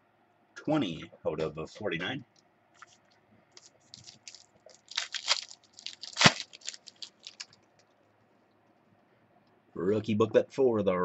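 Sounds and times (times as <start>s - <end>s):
plastic sleeves crinkling: 2.8s - 7.9s.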